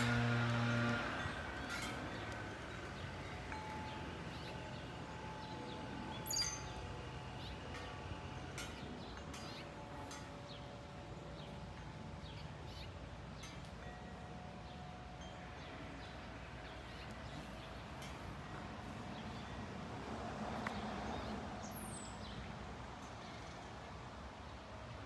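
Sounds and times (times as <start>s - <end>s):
birds chirping: 0.0s - 19.7s
wind chimes ringing softly: 0.0s - 21.3s, 22.2s - 24.1s.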